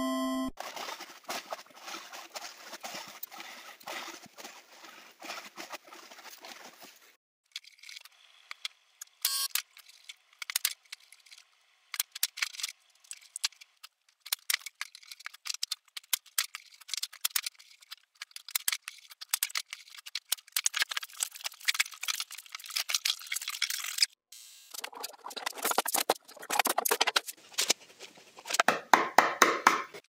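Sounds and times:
wood and clamps clicking and rattling: 9.8 - 24.1, 24.8 - 30.0.

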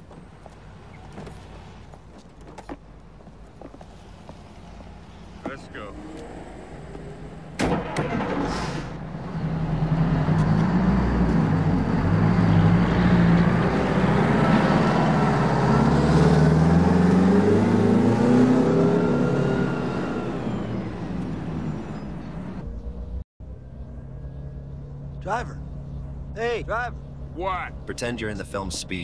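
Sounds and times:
vehicle engine accelerating: 4.6 - 26.4.

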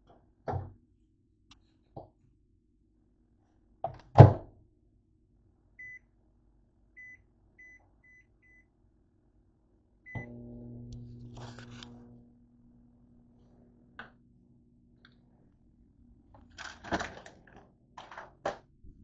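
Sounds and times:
microwave keypad beeps: 5.8 - 6.0, 7.0 - 8.7, 10.1 - 10.4
microwave oven humming: 10.0 - 18.5.

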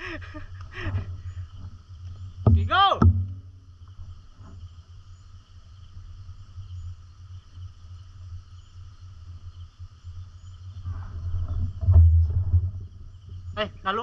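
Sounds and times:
insects chirping: 0.0 - 14.0
low steady rumble: 5.0 - 13.8.

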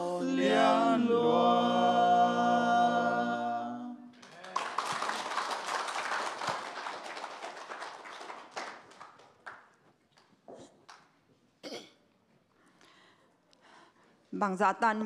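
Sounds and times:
vocal quartet singing a chord: 0.0 - 4.2
audience applauding: 4.1 - 11.1.

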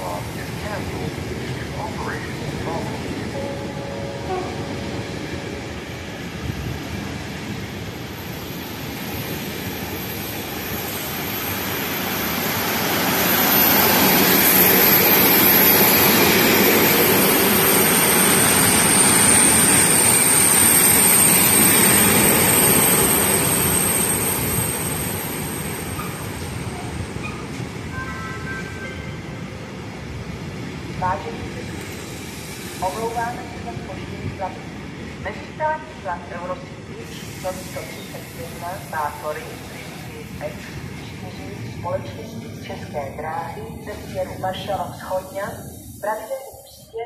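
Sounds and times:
train wheels rumbling on rail: 0.0 - 46.9.

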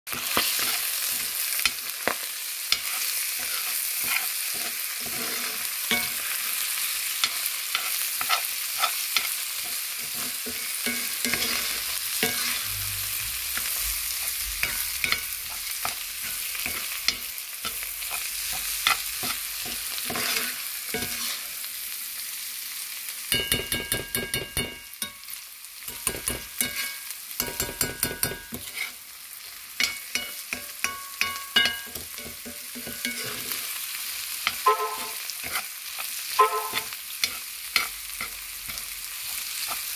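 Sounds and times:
corn kernels sizzling in a pot: 0.1 - 39.9
metal spoon scraping a pot: 2.7 - 6.4, 7.2 - 21.5, 25.9 - 29.0, 29.8 - 33.8, 34.4 - 38.8.

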